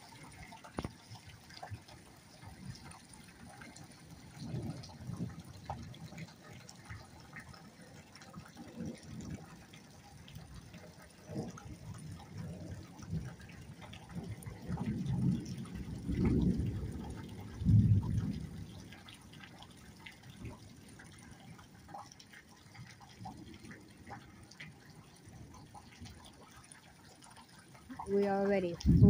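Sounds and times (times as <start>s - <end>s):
rain falling: 0.0s - 29.0s
wind gusts on microphone: 28.0s - 29.0s.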